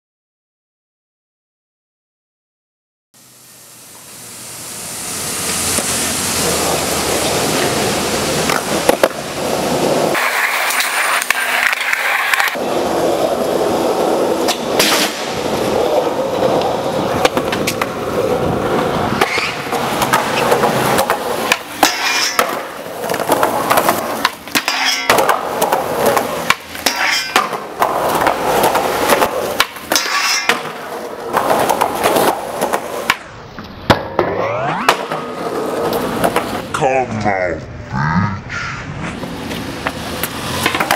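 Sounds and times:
skateboard wheels rolling on concrete: 3.2s - 40.9s
skateboard clacking on ground: 6.7s - 37.4s, 39.0s - 40.9s.

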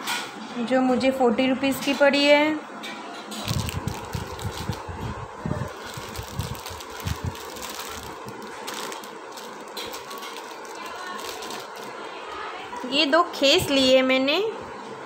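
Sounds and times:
steady background noise: 0.0s - 15.0s
cloth rustling and crackling: 3.4s - 12.8s.

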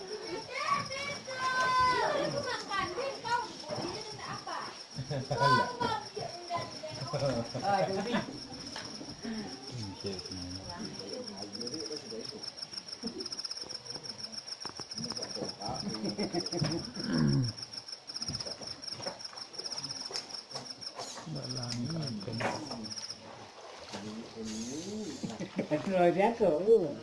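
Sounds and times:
faint voices talking: 0.0s - 17.6s
insect trilling: 0.0s - 23.4s, 24.3s - 25.8s.

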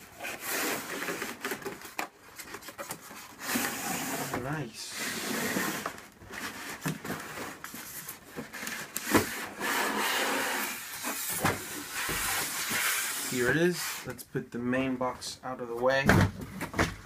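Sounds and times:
foam scraping against cardboard: 3.3s - 14.1s.

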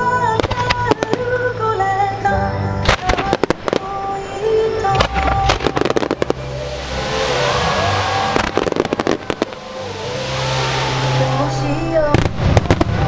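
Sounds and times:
firework hissing crackle: 2.9s - 13.0s.

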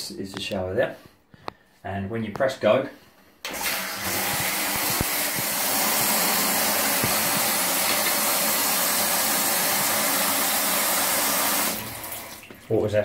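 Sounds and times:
electric shower water spraying: 3.5s - 12.4s.

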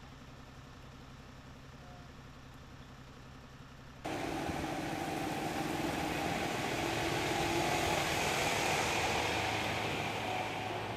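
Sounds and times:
heavy truck engine running: 0.0s - 10.9s
low engine hum: 0.0s - 10.9s
hiss: 4.1s - 10.9s.

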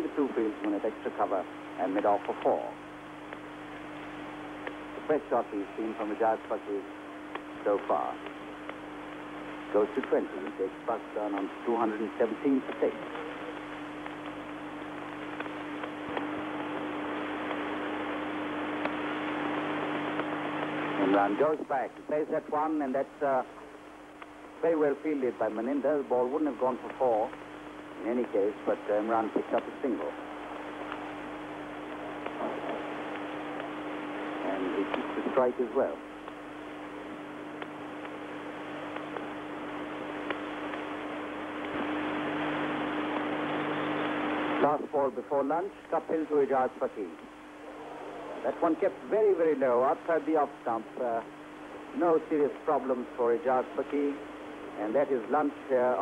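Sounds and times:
low hum: 0.0s - 56.0s
tape hiss: 0.0s - 56.0s
faint clicks: 12.7s - 17.6s, 24.2s - 24.4s.

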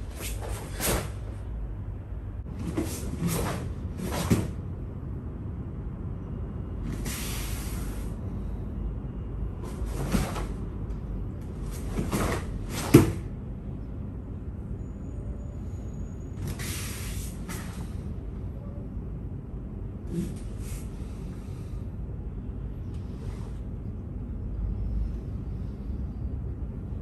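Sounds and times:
cloth snapping and swishing: 0.0s - 1.4s, 2.5s - 4.6s, 9.6s - 10.6s, 11.6s - 13.3s
low room hum: 0.0s - 27.0s.

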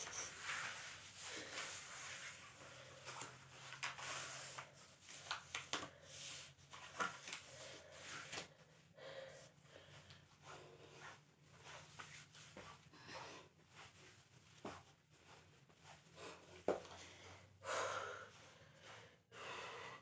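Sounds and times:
clothing rustling: 0.0s - 8.7s, 9.8s - 17.5s
person breathing: 7.4s - 11.2s, 12.9s - 13.6s, 16.1s - 20.0s.

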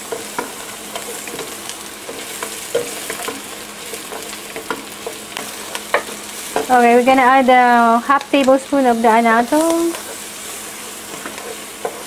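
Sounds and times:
spatula scraping and tapping pan: 0.0s - 7.4s, 9.4s - 12.0s
onion and garlic sizzling: 0.0s - 12.0s.

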